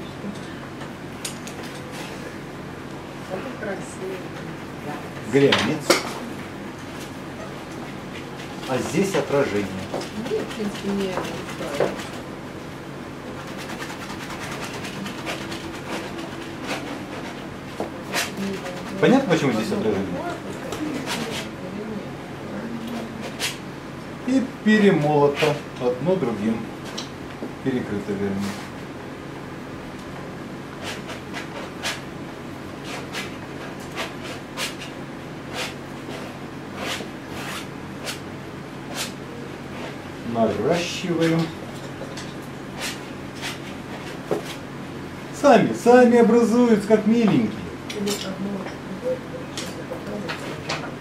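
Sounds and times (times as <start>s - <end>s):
steady background hum: 0.0s - 51.0s
brush scraping on canvas: 13.3s - 19.0s, 35.5s - 38.2s.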